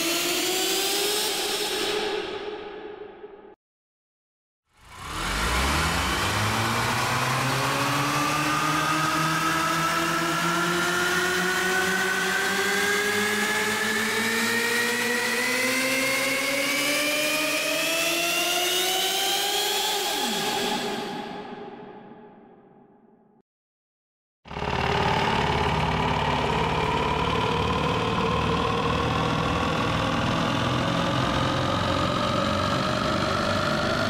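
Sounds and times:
rising cinematic riser tone: 4.8s - 21.4s, 24.5s - 34.0s.

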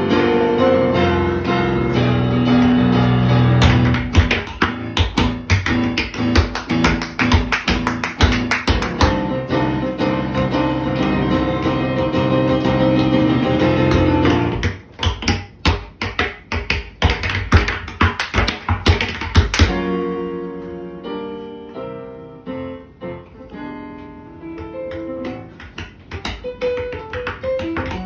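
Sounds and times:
piano playing: 0.0s - 16.0s, 17.5s - 28.0s
tap shoes tapping: 3.6s - 9.2s, 12.6s - 19.8s, 24.5s - 28.0s.

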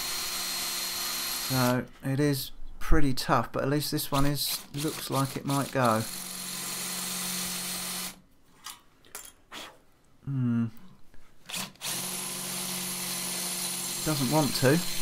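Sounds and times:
electric drill boring into metal: 0.0s - 1.8s, 4.5s - 8.2s, 11.5s - 15.0s.

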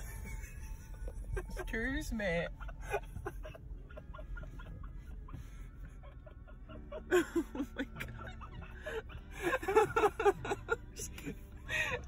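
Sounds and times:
low rumble inside car: 0.0s - 12.0s
person laughing: 2.6s - 10.8s.

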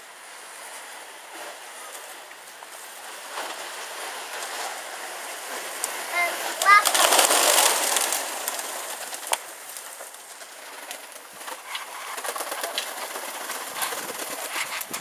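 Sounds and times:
pigeons flapping wings: 0.2s - 15.0s
sharp wing clap: 5.8s - 15.0s.

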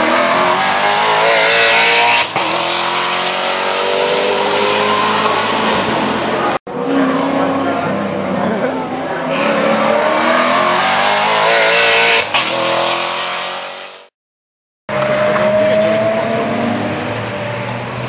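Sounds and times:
race car engine rising pitch: 0.0s - 13.8s
race car engine revving: 0.0s - 14.1s, 14.9s - 18.0s.

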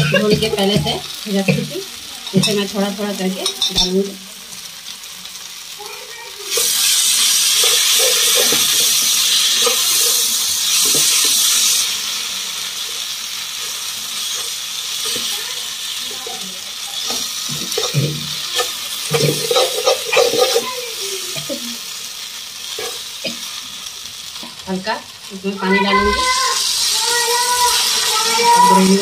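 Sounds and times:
slurry sizzling in hot pan: 0.0s - 29.0s
ladle stirring and scraping: 6.5s - 11.8s, 17.0s - 20.8s.

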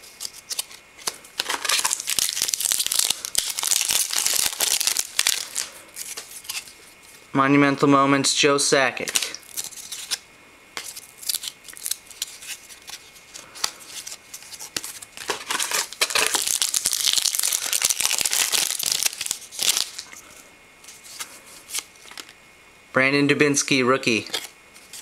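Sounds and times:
card wrapper tearing and crinkling: 0.0s - 6.8s, 9.0s - 10.2s, 10.8s - 20.2s, 21.0s - 22.4s, 24.1s - 25.0s.

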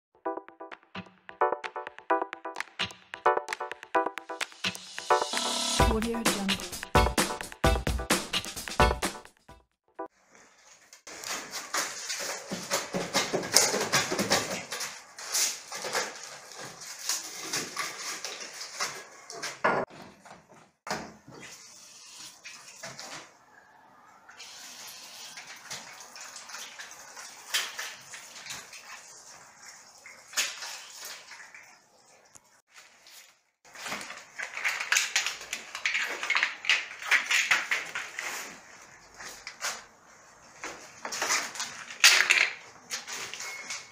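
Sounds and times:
scraping and rustling: 10.3s - 20.2s, 32.8s - 43.9s.

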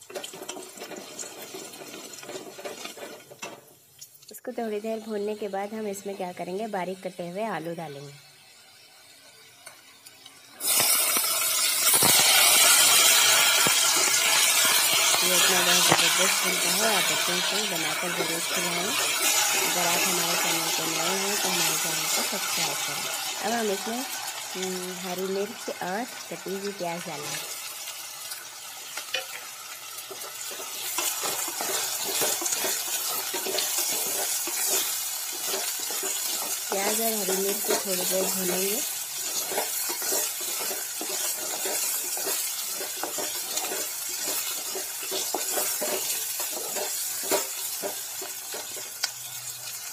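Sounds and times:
potatoes sizzling in hot oil: 0.0s - 49.9s
wooden spatula scraping a pot: 0.1s - 3.6s, 29.0s - 49.0s.

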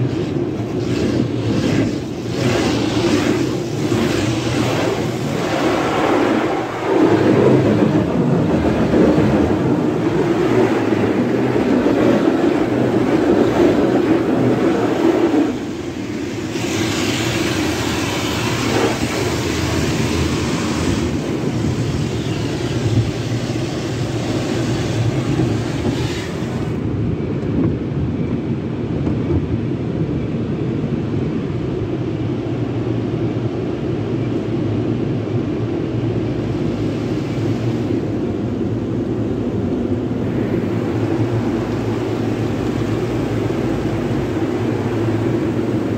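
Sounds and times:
car wash brushes and water spray: 0.0s - 26.8s.

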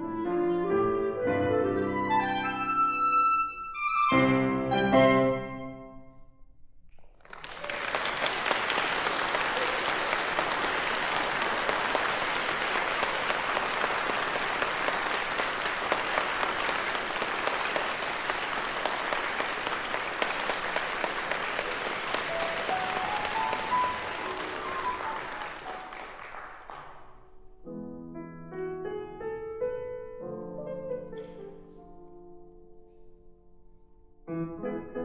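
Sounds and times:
grand piano playing: 0.0s - 6.2s, 8.8s - 26.3s, 27.2s - 35.0s
audience applauding: 7.0s - 27.1s.

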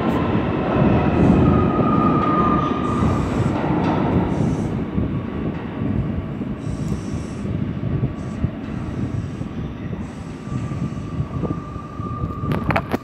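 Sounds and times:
train wheels rumbling on rail: 0.0s - 13.0s
faint high whine: 8.2s - 13.0s.

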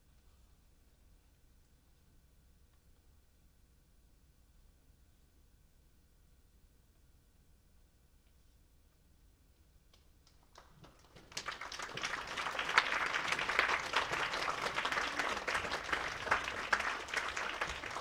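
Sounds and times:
audience applause: 10.5s - 18.0s.

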